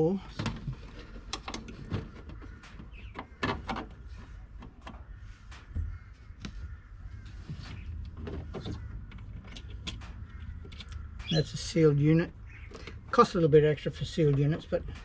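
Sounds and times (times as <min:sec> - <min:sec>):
clicks and knocks of handling: 0:00.3 - 0:11.4.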